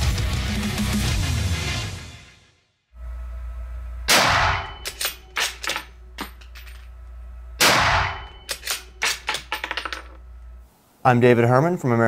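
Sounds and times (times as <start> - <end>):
rifle shot ringing indoors: 4.1 - 5.6, 7.6 - 9.3.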